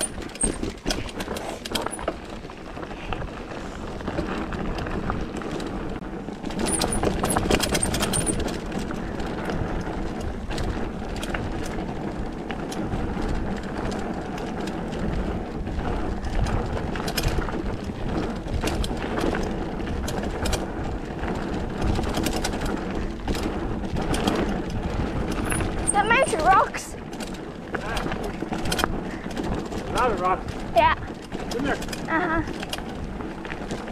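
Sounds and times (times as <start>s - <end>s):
bike rattling and clicking: 0.0s - 33.9s
wind noise on microphone: 0.0s - 33.9s.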